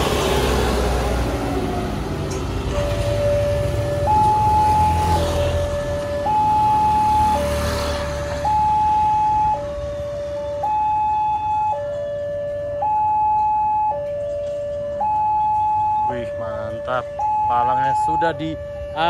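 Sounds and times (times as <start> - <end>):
vehicle engines rumbling past: 0.0 - 19.0
two-tone level crossing siren: 1.5 - 19.0.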